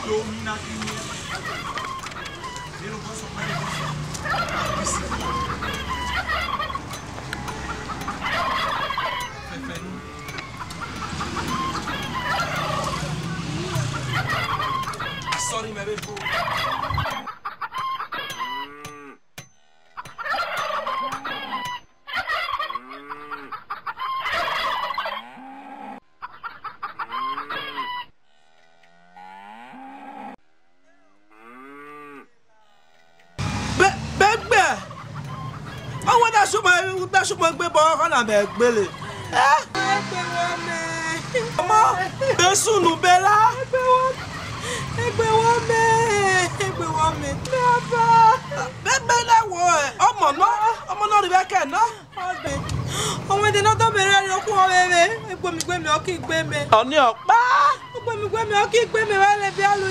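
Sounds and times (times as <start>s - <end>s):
chickens clucking: 0.0s - 19.1s, 20.0s - 25.4s, 26.2s - 28.1s, 33.4s - 59.9s
fowl calling: 0.0s - 19.2s, 20.0s - 28.2s, 33.4s - 59.9s
low animal calls: 27.0s - 33.4s.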